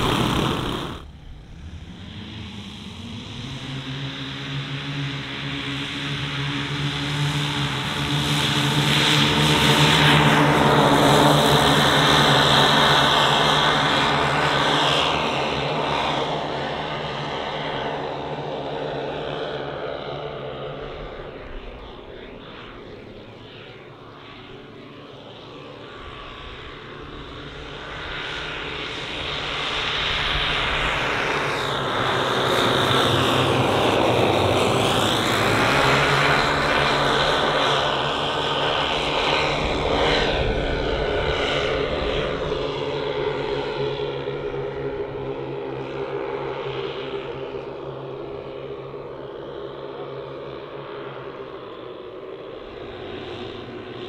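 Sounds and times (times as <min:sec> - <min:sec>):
model aircraft engines in flight: 0:00.0 - 0:54.0.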